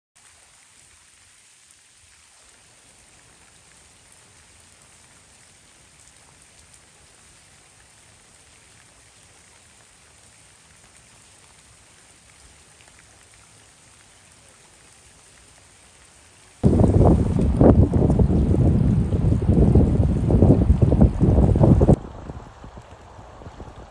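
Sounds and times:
rain falling on leaves: 0.2 - 23.9
wind on microphone: 16.6 - 23.9.

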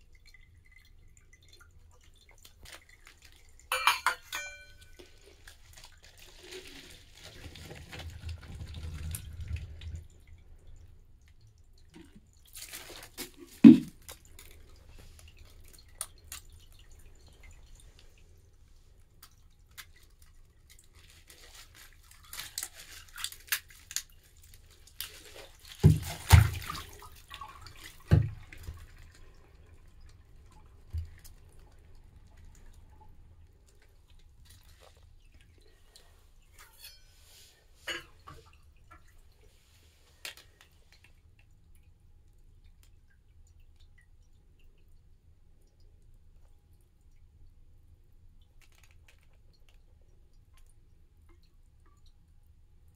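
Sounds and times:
water dripping: 0.0 - 52.9
plastic knocking and scraping ice: 13.2 - 14.0, 25.8 - 26.6.

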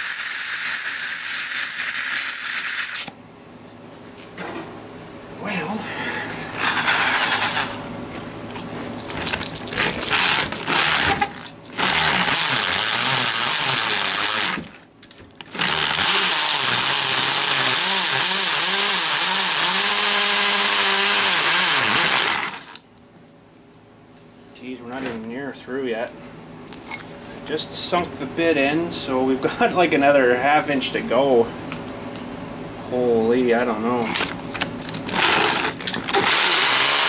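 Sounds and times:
power drill hole saw grinding: 0.0 - 3.1, 9.5 - 14.8, 15.4 - 22.8, 34.9 - 37.0.

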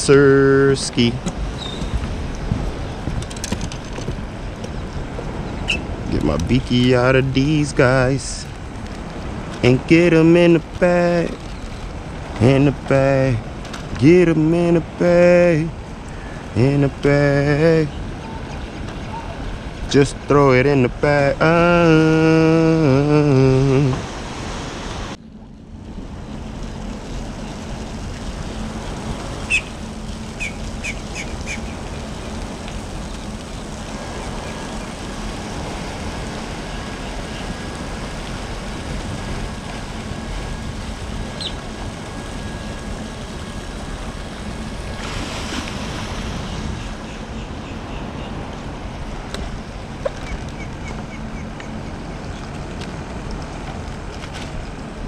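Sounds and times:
sea waves washing: 0.0 - 55.0
wind buffeting microphone: 0.0 - 55.0
bird chirps: 1.5 - 2.0, 5.4 - 5.9, 29.5 - 29.8, 30.4 - 31.9, 41.3 - 41.6.

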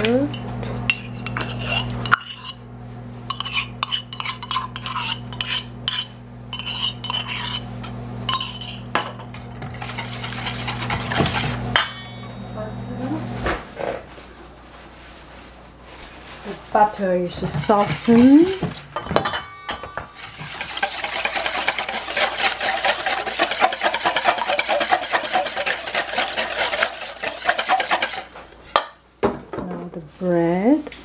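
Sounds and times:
steady low hum: 0.0 - 29.2
metal spoon scraping and clinking: 0.3 - 2.6, 3.3 - 12.4, 19.0 - 28.3.

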